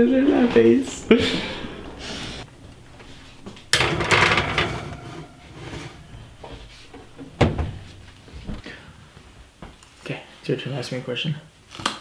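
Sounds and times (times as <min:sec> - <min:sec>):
oven door clacking shut: 0:03.7 - 0:05.0, 0:07.0 - 0:07.8
oven door clattering open: 0:03.7 - 0:07.9.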